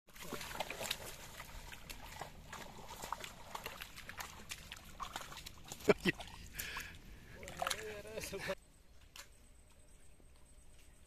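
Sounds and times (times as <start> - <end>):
fish splashing in water: 0.1 - 6.8.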